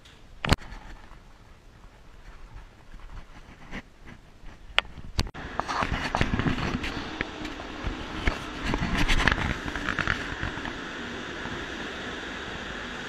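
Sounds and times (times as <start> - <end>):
train rumble and wheel rattle: 5.4 - 13.0.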